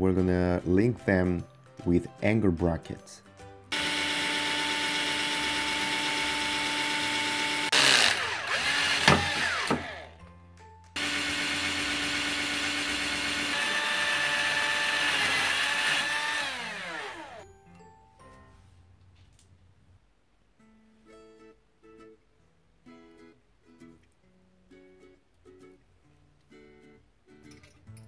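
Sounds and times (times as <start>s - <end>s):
cordless drill boring metal: 3.7s - 10.2s, 11.0s - 17.4s.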